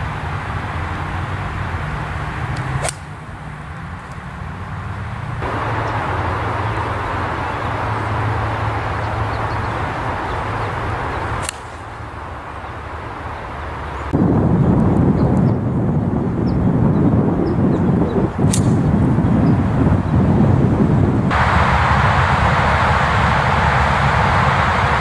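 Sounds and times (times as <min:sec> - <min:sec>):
low hum: 0:00.0 - 0:25.0
outdoor background noise: 0:00.0 - 0:25.0
golf club striking ball: 0:02.0 - 0:04.5, 0:11.1 - 0:12.1, 0:18.4 - 0:18.9.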